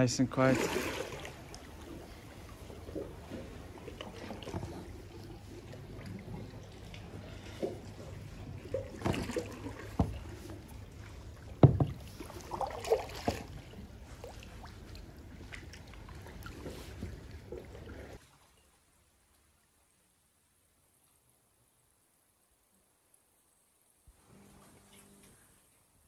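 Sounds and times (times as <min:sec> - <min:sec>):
water lapping against kayak hull: 0:00.0 - 0:19.0
hollow knocks on kayak: 0:09.0 - 0:10.4, 0:11.6 - 0:12.2.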